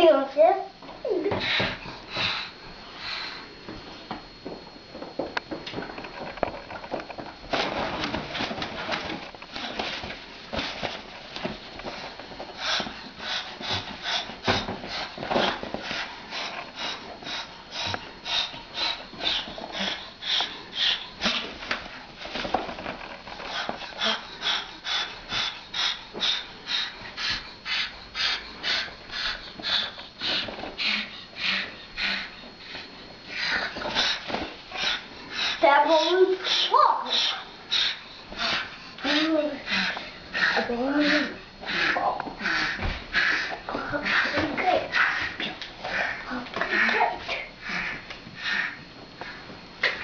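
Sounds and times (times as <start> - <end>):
cockatoo hissing: 33.3 - 48.8.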